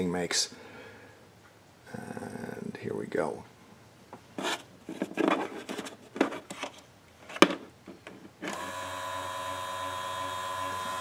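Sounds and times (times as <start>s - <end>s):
motor whining: 8.5s - 11.0s.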